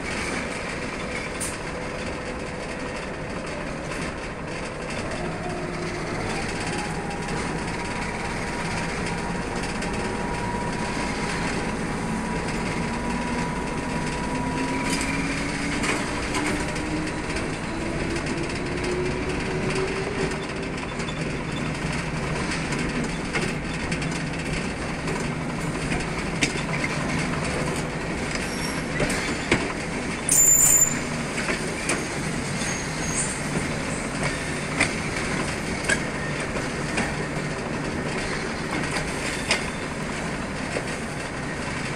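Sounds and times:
wheels clacking at rail joints: 0:00.0 - 0:41.9
high wheel squeal: 0:28.3 - 0:29.6, 0:30.2 - 0:35.2, 0:38.2 - 0:40.2.

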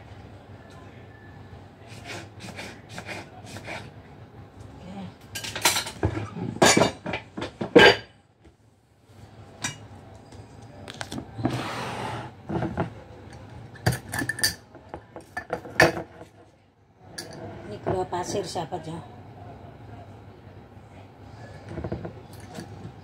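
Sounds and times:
kitchenware clattering on counter: 0:05.4 - 0:08.1, 0:13.8 - 0:16.4.

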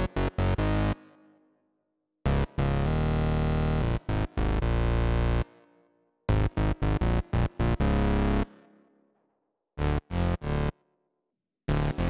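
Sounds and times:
synth bass notes: 0:11.7 - 0:12.0.

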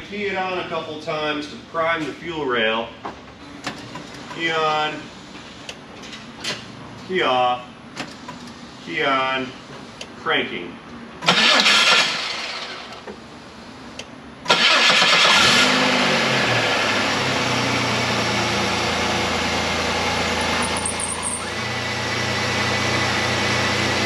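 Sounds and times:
car engine revving and idling: 0:14.6 - 0:24.0.

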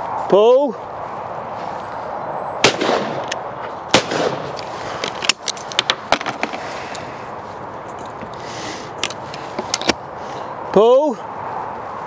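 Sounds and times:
shotgun shots: 0:02.6 - 0:03.3, 0:03.9 - 0:04.6.

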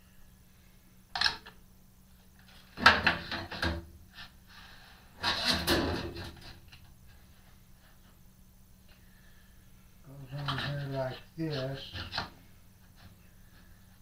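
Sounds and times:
metal housing knocking and scraping: 0:05.2 - 0:06.6.

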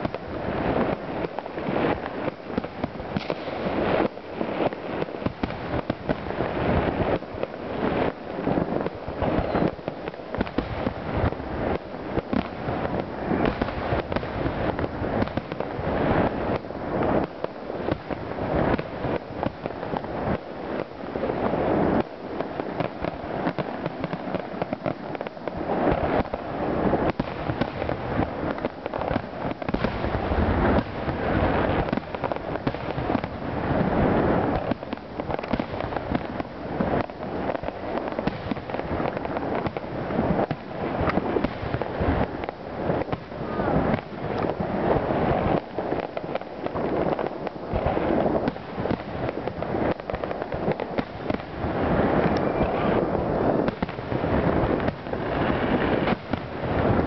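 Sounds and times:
fireworks bangs and crackling: 0:00.0 - 0:57.0.

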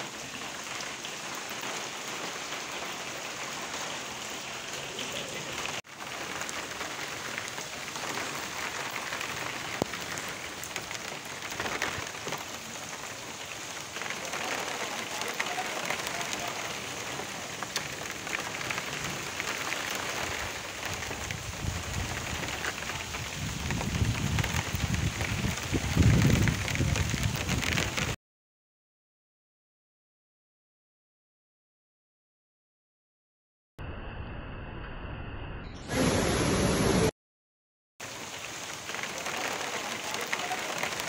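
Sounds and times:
steady rain falling: 0:00.0 - 0:28.2, 0:35.9 - 0:37.1, 0:38.0 - 0:41.0
rain drop taps: 0:05.2 - 0:13.0, 0:14.0 - 0:28.2.

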